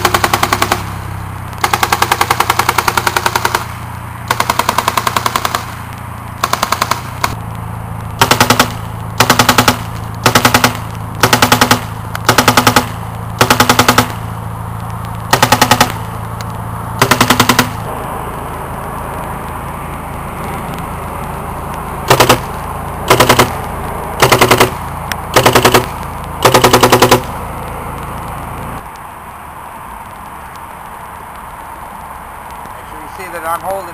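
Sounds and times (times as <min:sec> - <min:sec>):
paintball marker firing bursts: 0:00.0 - 0:07.4, 0:08.2 - 0:14.2, 0:15.3 - 0:16.2, 0:17.0 - 0:17.9, 0:22.1 - 0:27.4
steady low hum: 0:00.0 - 0:31.9.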